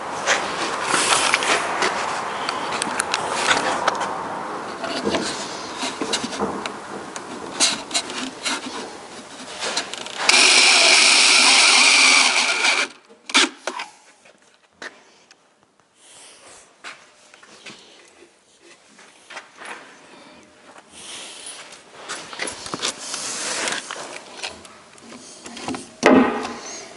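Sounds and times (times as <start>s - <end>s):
cordless drill running: 10.3s - 13.0s.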